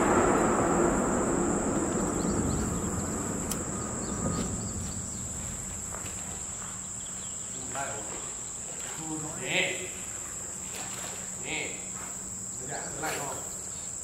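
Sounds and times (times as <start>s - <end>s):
low rumbling noise: 0.0s - 10.7s
insects droning: 0.0s - 14.0s.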